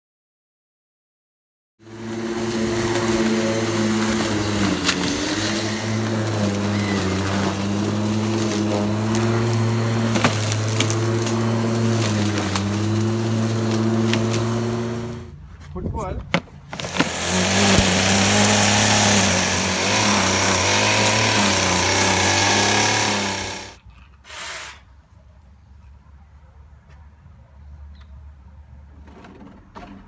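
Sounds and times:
electric lawn mower running: 0:01.8 - 0:15.3, 0:16.7 - 0:23.8
grass cuttings striking blade: 0:01.9 - 0:15.3, 0:16.3 - 0:23.8.

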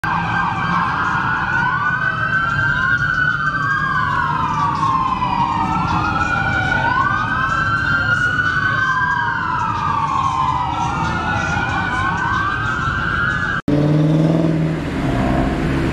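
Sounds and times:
police sirens wailing: 0:00.0 - 0:15.9.

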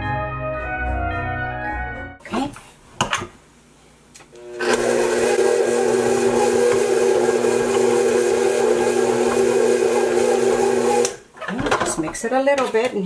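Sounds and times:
electric mixer beating batter: 0:04.4 - 0:11.2.

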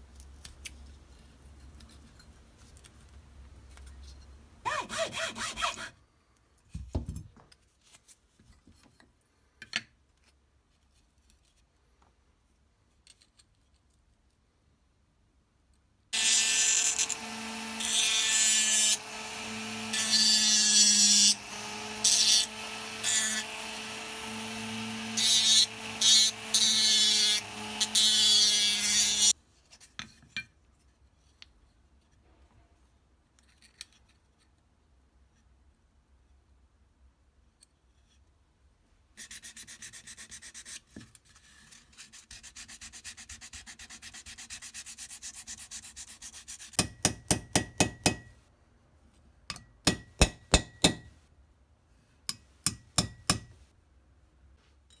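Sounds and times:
rotary tool sanding wood: 0:04.7 - 0:05.9, 0:16.2 - 0:29.3.

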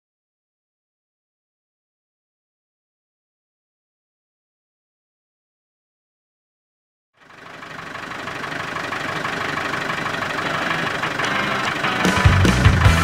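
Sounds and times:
diesel engine idling: 0:07.2 - 0:13.0
heavy bass beat: 0:10.6 - 0:13.0.

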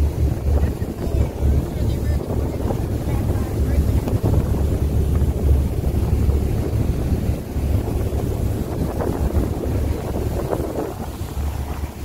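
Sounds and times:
boat wake spray rushing: 0:00.0 - 0:12.0
wind buffeting microphone: 0:00.0 - 0:12.0.

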